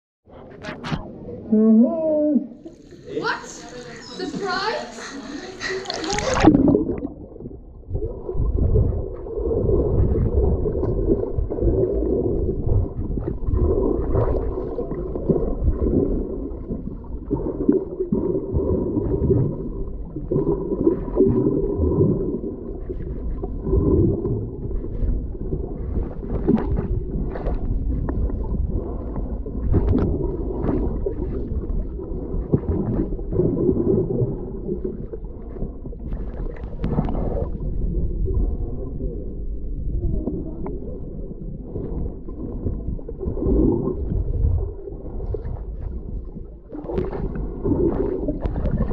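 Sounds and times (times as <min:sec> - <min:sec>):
underwater rumble and gurgling: 0:00.3 - 0:48.9.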